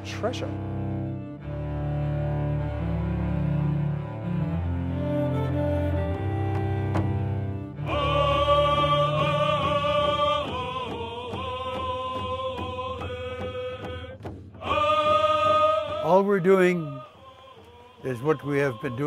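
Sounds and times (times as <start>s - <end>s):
low cello music: 0.0s - 13.7s, 14.6s - 19.0s
men chanting a song: 7.8s - 19.0s
hand drum beats: 9.6s - 15.2s.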